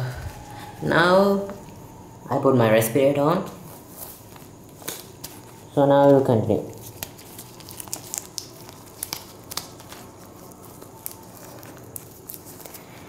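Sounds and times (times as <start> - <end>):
faint room hiss: 0.0 - 13.0
clicks and crinkling rustles: 3.7 - 13.0.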